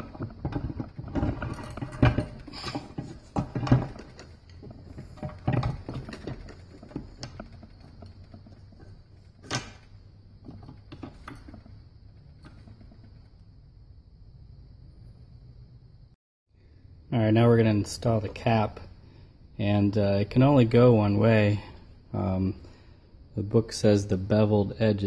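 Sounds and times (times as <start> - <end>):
metal clunks and knocks: 0.0 - 13.4.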